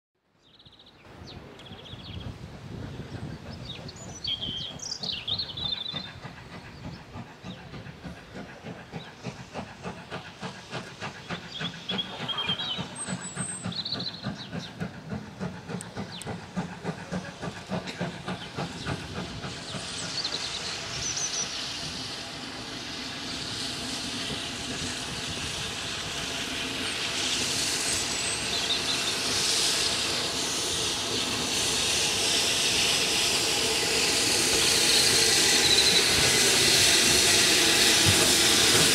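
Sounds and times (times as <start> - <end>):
steam locomotive chuffing: 1.2 - 38.9
steam hissing: 1.4 - 38.9
bird chirping: 3.4 - 7.8.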